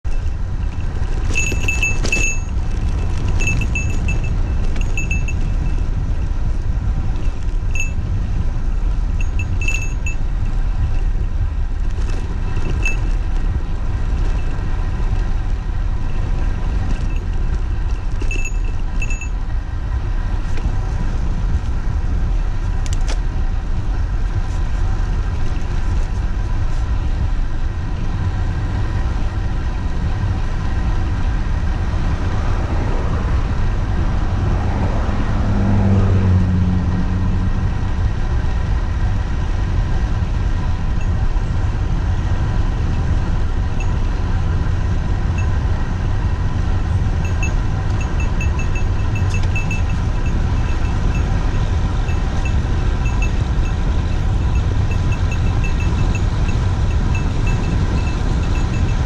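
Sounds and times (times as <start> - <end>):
wind rush: 0.0 - 59.0
bicycle tyre noise: 0.1 - 35.9
motor vehicle passing: 0.2 - 59.0.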